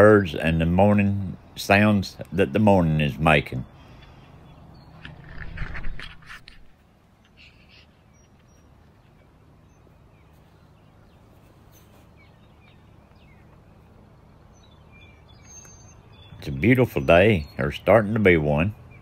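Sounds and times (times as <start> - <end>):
hand scraping camera: 5.0 - 6.7
faint bird chirps: 7.2 - 17.8.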